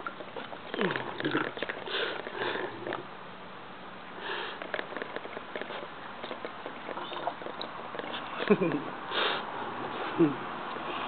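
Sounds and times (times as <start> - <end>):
dog sniffing: 1.6 - 3.0.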